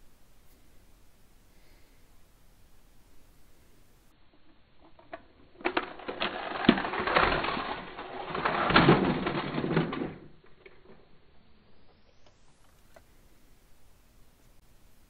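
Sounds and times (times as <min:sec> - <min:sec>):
toy train rattling on plastic track: 0:04.8 - 0:11.1.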